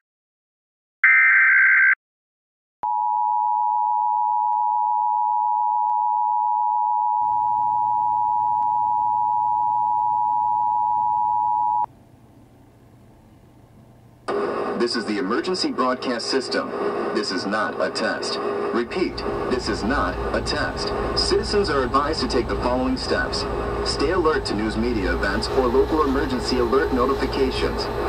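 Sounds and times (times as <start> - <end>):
faint low hum: 7.3 - 15.4.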